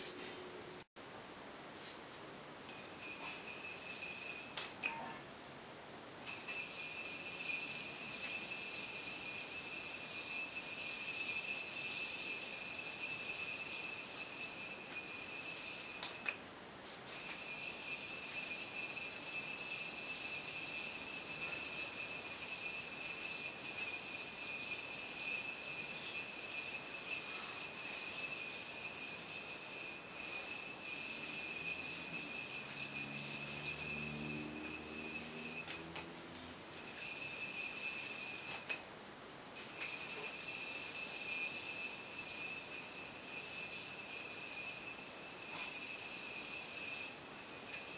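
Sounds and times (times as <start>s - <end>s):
yoyo spinning whine: 1.8s - 5.3s, 6.0s - 47.9s
yoyo click: 6.2s - 16.4s.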